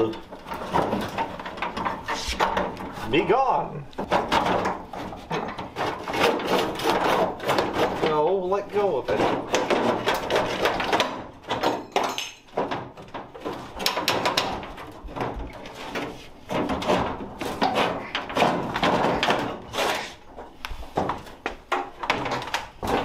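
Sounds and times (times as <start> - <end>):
glass pane scraping against metal: 0.0 - 10.8, 15.5 - 20.5.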